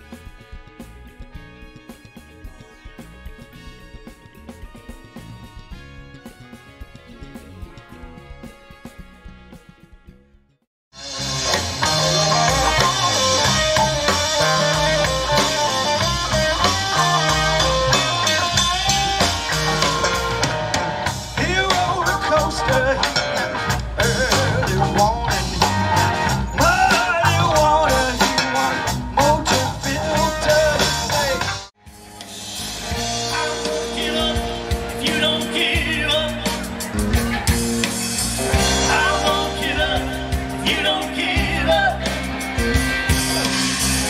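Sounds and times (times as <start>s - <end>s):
bass guitar: 0.0s - 44.0s
drums: 0.0s - 44.0s
electric guitar: 11.0s - 44.0s
person singing: 21.4s - 31.6s, 33.2s - 37.7s, 38.6s - 42.5s.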